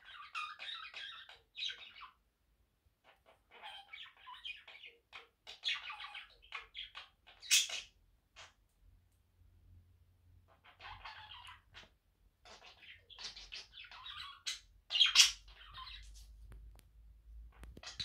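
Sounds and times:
budgerigars chattering: 0.0s - 2.2s, 3.1s - 8.6s, 10.5s - 11.9s, 12.5s - 16.1s, 17.6s - 18.0s.

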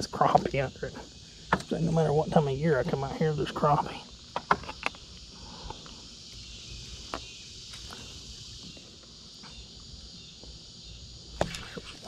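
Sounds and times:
crickets chirping: 0.0s - 12.0s
sharp clicks and knocks: 4.3s - 5.0s.

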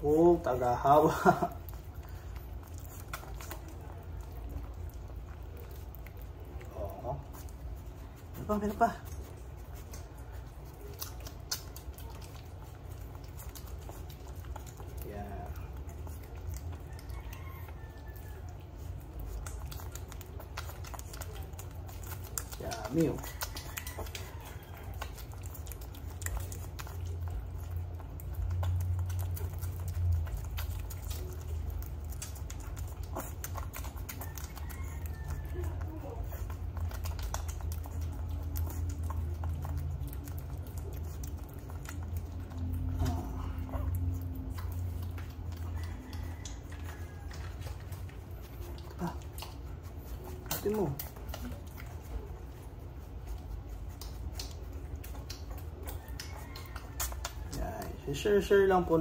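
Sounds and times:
low steady hum: 0.0s - 59.0s
puppy licking and smacking: 0.0s - 59.0s.

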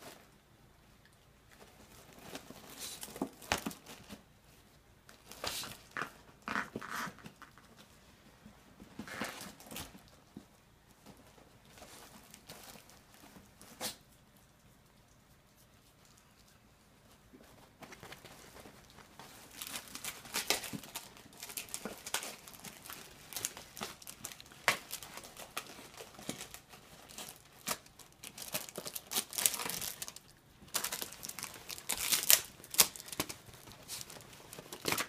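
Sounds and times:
cardboard and paper rustling and tearing: 1.6s - 4.3s, 5.1s - 8.0s, 8.8s - 10.4s, 17.4s - 35.0s.

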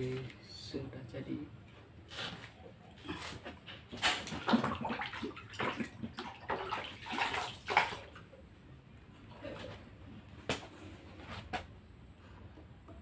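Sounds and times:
water splashing and sloshing: 2.2s - 8.5s.

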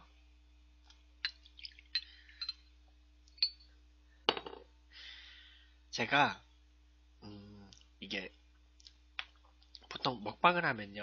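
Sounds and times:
glass bottle clinking shot glass: 3.4s - 3.7s.

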